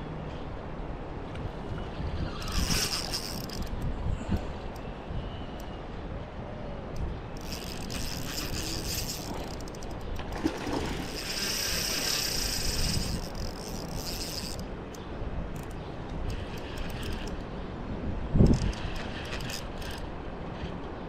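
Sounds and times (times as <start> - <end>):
fishing reel ratcheting whir: 2.3 - 3.8, 7.4 - 10.0, 10.9 - 14.7, 15.6 - 17.4, 18.4 - 20.1.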